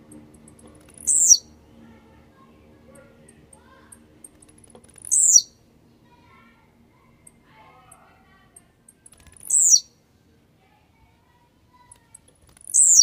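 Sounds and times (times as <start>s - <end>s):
bird singing short song: 0.9s - 1.5s, 5.0s - 5.6s, 8.9s - 9.9s, 12.6s - 13.0s.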